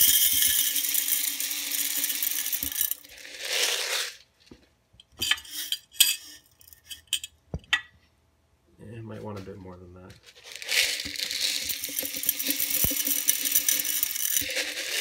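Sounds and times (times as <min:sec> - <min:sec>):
gravel poured into glass jar: 0:00.0 - 0:04.2, 0:10.3 - 0:15.0
gravel clinking against glass: 0:10.6 - 0:15.0.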